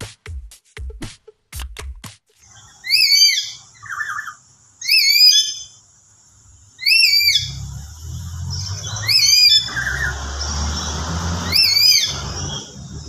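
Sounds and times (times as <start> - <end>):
parrot shrill whistled calls: 2.6 - 5.8, 6.8 - 7.6, 8.6 - 12.8.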